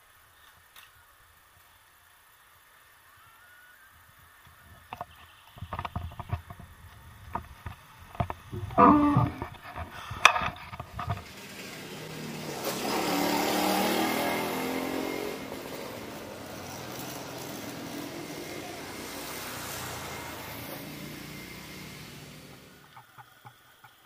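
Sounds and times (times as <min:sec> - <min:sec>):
low traffic hum: 0:04.8 - 0:24.0
motorbike passing: 0:07.4 - 0:23.6
sharp knocks: 0:08.2 - 0:11.3.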